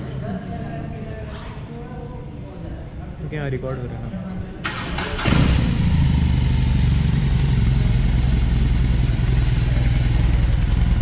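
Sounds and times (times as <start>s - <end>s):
motorcycle engine idling: 5.2s - 11.0s.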